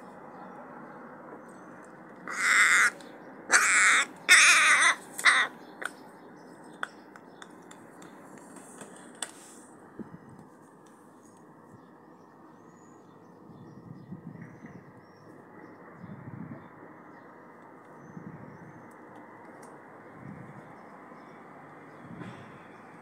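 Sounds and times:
crow cawing: 2.2s - 5.6s.

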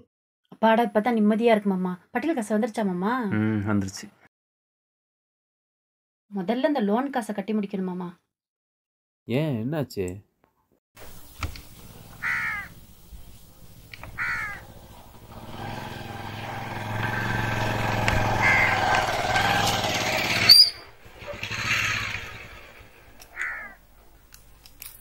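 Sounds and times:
crows cawing: 12.1s - 12.8s, 14.0s - 19.7s, 23.1s - 23.8s.

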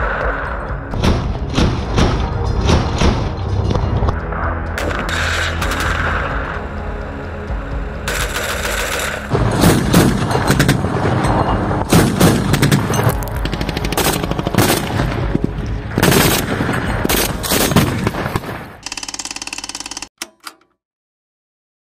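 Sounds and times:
machine gun fire: 8.1s - 10.8s.

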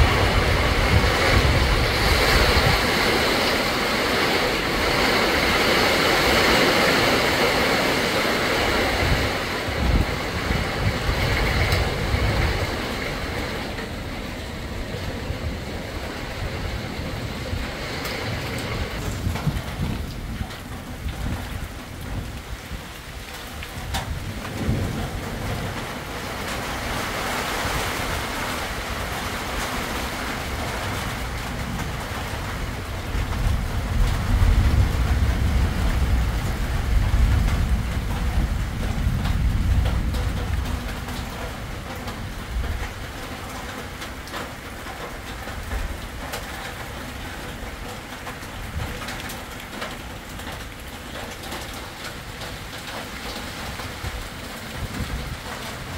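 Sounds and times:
rain hissing: 0.0s - 55.9s
wind gusts through trees: 0.0s - 55.9s.

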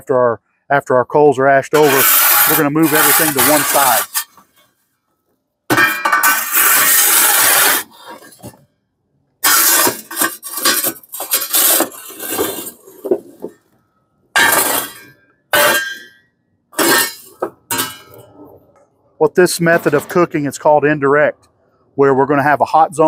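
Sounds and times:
charcoal clattering on metal shovel: 1.8s - 4.4s, 5.7s - 8.6s, 9.4s - 13.5s, 14.4s - 16.1s, 16.8s - 18.2s.

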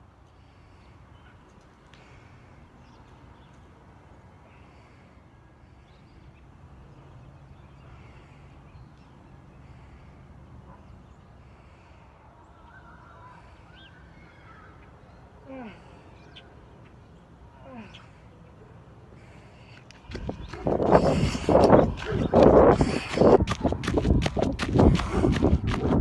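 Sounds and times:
distant birds calling: 0.1s - 26.0s
low rumble: 20.1s - 26.0s.

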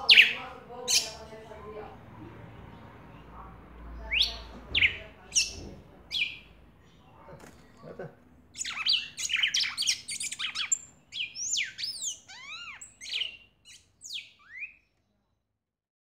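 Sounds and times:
cardinal singing whistled notes: 8.6s - 14.9s.

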